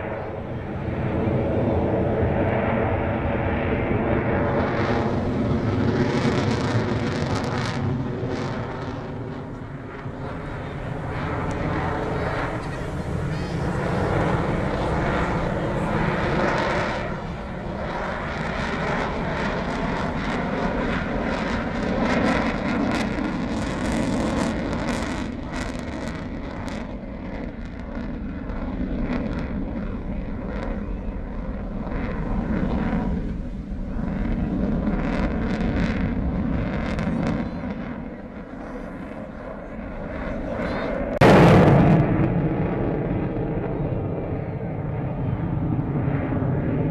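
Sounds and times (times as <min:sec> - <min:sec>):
fighter jet flying overhead: 0:00.0 - 0:46.9.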